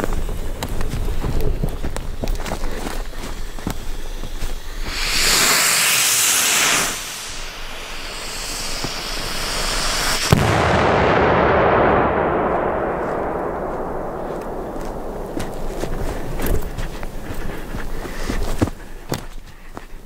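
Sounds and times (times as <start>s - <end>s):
firework hissing: 0.0s - 12.2s, 13.0s - 18.0s
firework bang with echo: 5.9s - 15.9s.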